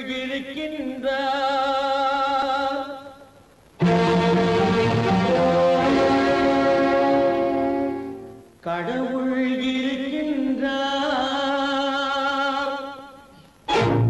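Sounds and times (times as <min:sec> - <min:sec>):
orchestra holding chords: 0:03.8 - 0:08.6.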